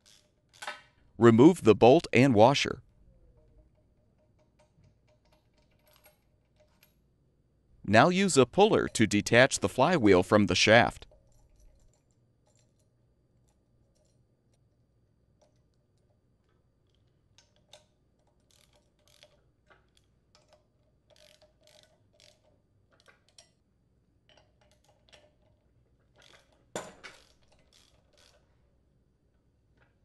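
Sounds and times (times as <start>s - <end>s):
socket ratchet clicking: 16.9s - 23.6s.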